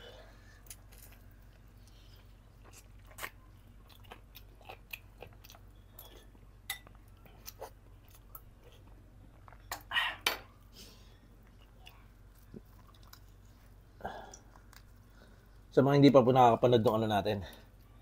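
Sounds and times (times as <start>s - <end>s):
chewing and lip smacks: 0.6s - 9.9s, 11.4s - 15.2s.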